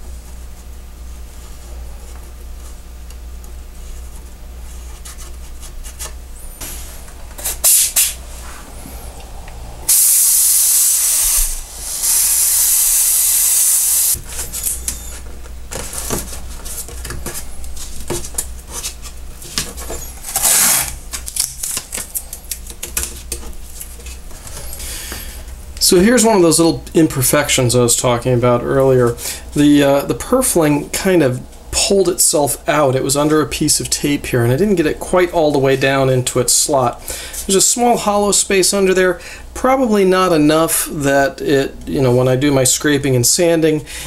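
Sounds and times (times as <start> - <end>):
steam cleaner hissing: 6.6 - 14.2
masking tape pulled off roll: 7.4 - 8.2, 20.2 - 22.2.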